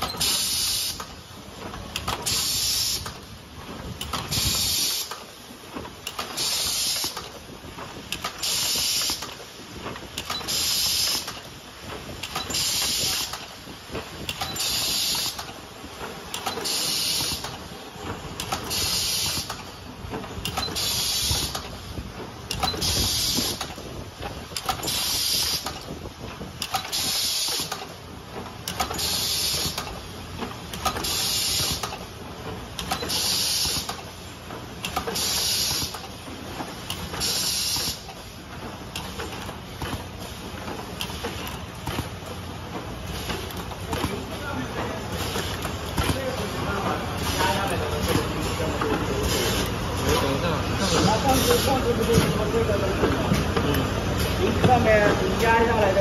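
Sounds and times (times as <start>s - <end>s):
hiss of released air: 0.2s - 1.1s, 2.3s - 3.1s, 4.3s - 5.2s, 6.4s - 7.2s, 8.4s - 9.3s, 10.5s - 11.3s, 12.5s - 13.4s, 14.6s - 15.4s, 16.6s - 17.5s, 18.7s - 19.5s, 20.8s - 21.6s, 22.8s - 23.6s, 24.9s - 25.7s, 26.9s - 27.8s, 29.0s - 29.8s, 31.0s - 31.9s, 33.1s - 34.0s, 35.1s - 36.0s, 37.2s - 38.0s.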